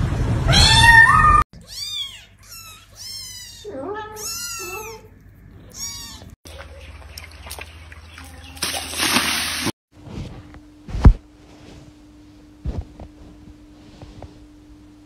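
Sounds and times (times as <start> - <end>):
dog sloshing water in a tub: 6.5 - 9.7.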